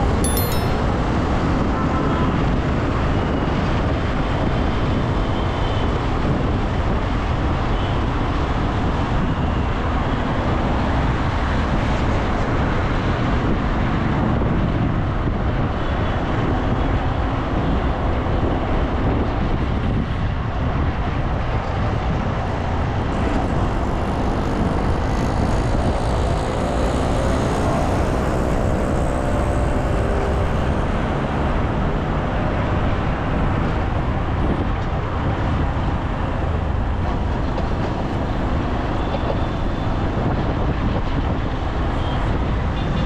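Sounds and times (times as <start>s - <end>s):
road and traffic noise: 0.0s - 43.0s
low wind rumble on microphone: 0.9s - 43.0s.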